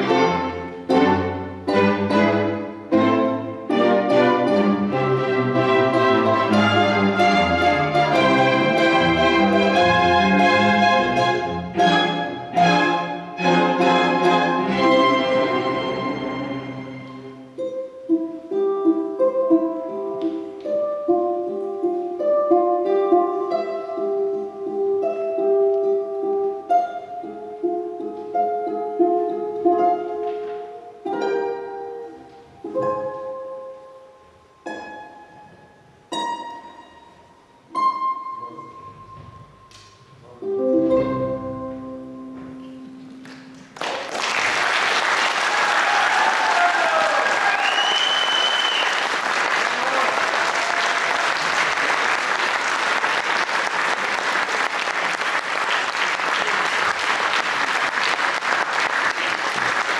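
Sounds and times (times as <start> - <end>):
ukulele and string orchestra chords: 0.0 - 59.9
audience applause: 43.5 - 59.9.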